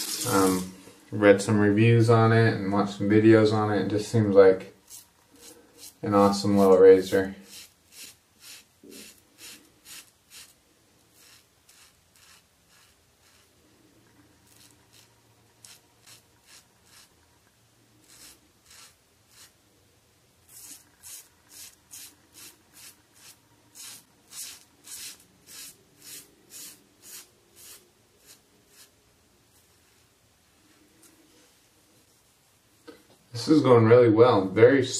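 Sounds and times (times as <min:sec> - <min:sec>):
razor scraping stubble: 0:04.8 - 0:17.3, 0:18.0 - 0:19.6, 0:20.5 - 0:29.0.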